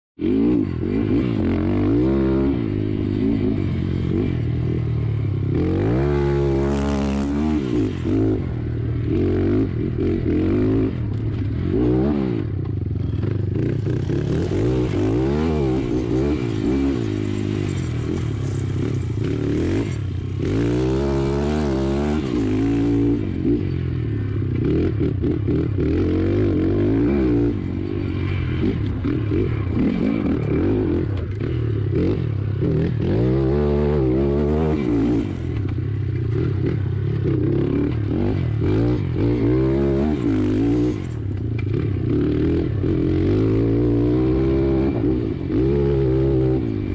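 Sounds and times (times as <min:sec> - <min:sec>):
motorbike engine revving: 0:00.2 - 0:46.9.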